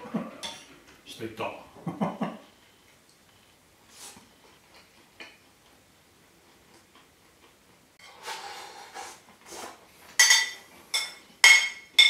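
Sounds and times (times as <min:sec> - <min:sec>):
spoon clinking on plate: 0:10.2 - 0:12.0.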